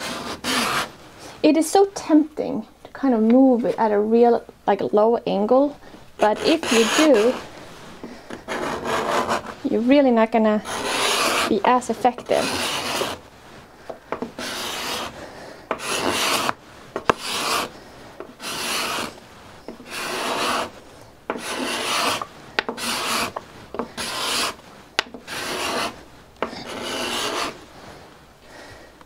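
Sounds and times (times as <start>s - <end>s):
card scraper scraping wood: 0.0s - 0.9s, 6.2s - 7.5s, 8.3s - 9.6s, 10.6s - 13.2s, 14.1s - 27.6s.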